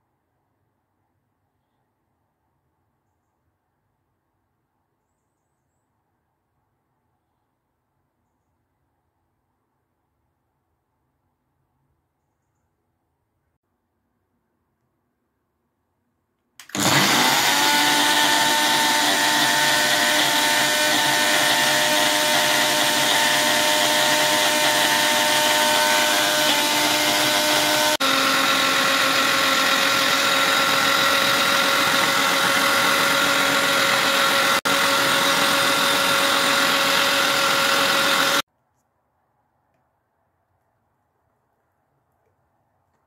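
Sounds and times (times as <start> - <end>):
blender motor whining: 16.6 - 38.4.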